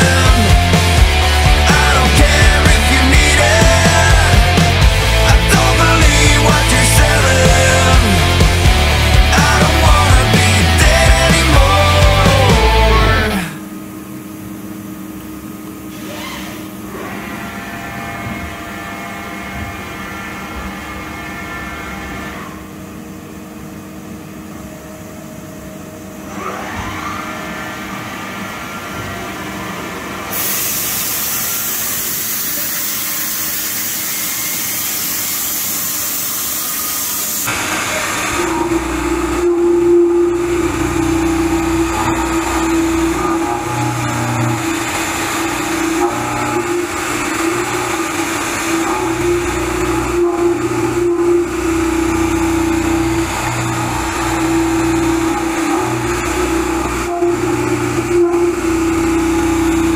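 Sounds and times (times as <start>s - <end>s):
end mill cutting metal: 0.0s - 13.7s, 15.8s - 22.8s, 26.1s - 59.9s
machine whine: 0.0s - 59.9s
loud steady hiss: 30.3s - 59.9s.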